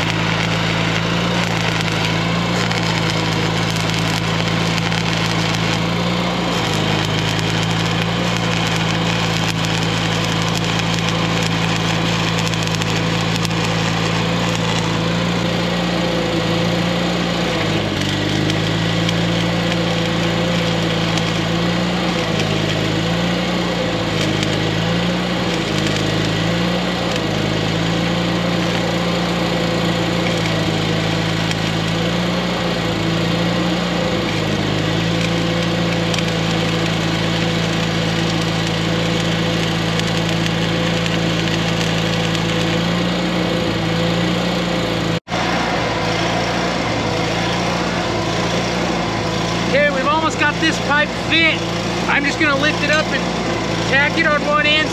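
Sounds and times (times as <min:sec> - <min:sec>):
small engine running: 0:00.0 - 0:54.9
crackling hiss: 0:06.5 - 0:14.8.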